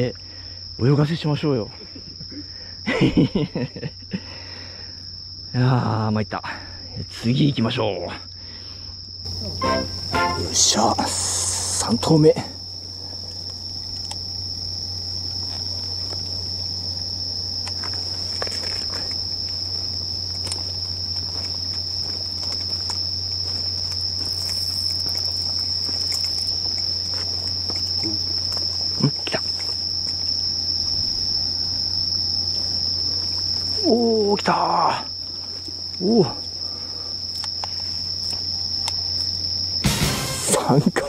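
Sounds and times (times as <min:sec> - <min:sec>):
night insects trilling: 0:00.0 - 0:41.0.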